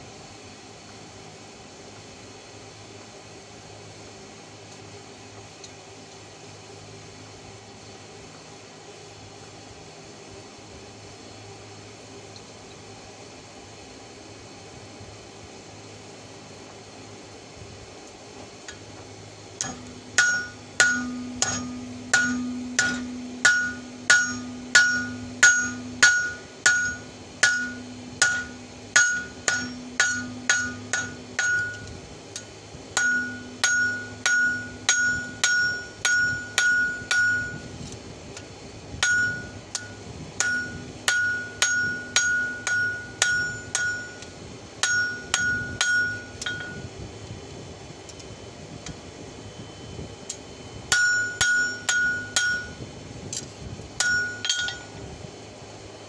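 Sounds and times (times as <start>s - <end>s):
hammer striking metal on anvil: 19.6s - 37.7s, 39.0s - 46.8s, 50.9s - 52.8s, 54.0s - 55.0s.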